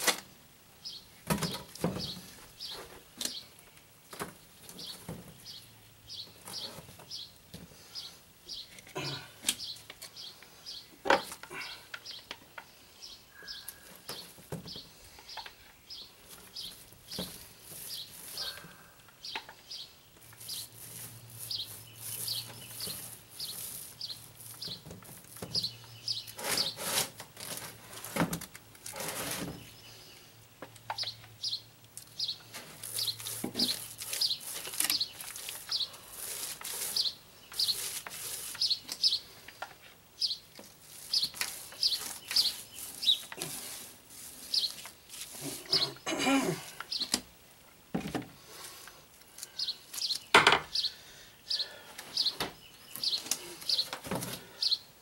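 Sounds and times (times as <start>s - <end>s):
bird chirping: 0.8s - 3.8s, 4.4s - 26.8s, 29.5s - 46.1s, 49.5s - 54.9s
knocks and scrapes of hand work: 17.1s - 18.4s, 20.4s - 29.7s, 32.5s - 35.8s, 52.2s - 54.5s.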